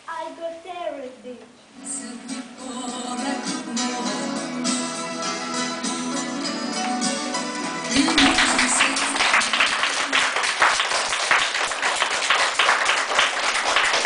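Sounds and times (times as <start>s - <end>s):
backing music: 1.8s - 10.0s
audience clapping: 7.9s - 14.0s.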